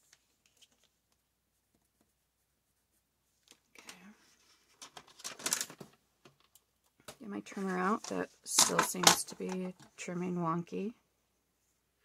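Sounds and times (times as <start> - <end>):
paper rustling and sliding: 7.5 - 8.3.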